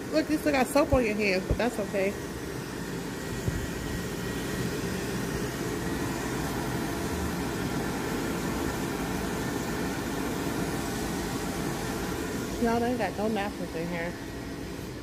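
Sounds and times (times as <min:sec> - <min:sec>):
hand dryer blowing: 0:00.0 - 0:15.0.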